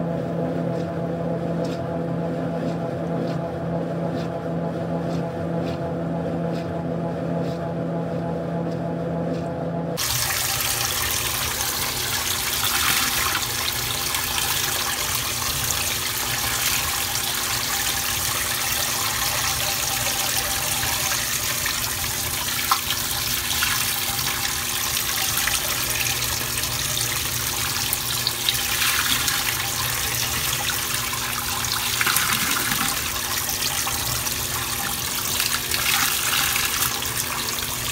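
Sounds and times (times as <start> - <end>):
washing machine drum hum: 9.3 - 37.9
water pouring into washing machine: 10.0 - 37.9.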